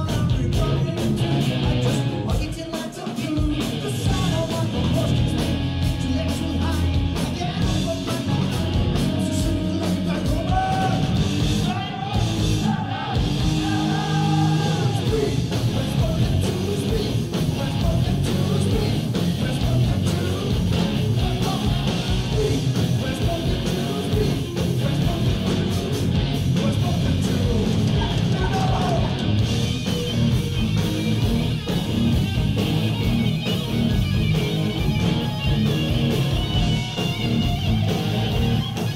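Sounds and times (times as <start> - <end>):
live heavy rock band: 0.0 - 38.9
person singing: 13.6 - 25.9.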